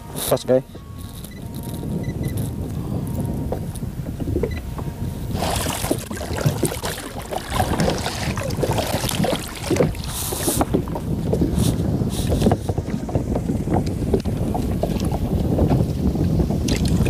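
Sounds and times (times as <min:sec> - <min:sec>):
wind on microphone: 0:00.0 - 0:17.0
water lapping against kayak: 0:01.0 - 0:17.0.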